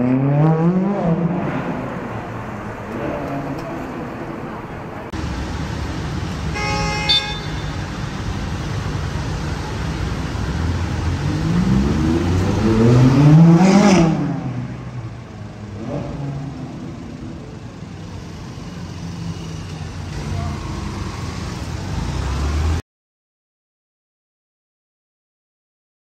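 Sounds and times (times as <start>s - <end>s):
city traffic: 0.0s - 22.8s
vehicle horn toot: 6.5s - 7.9s
sports car engine revving: 10.3s - 17.4s.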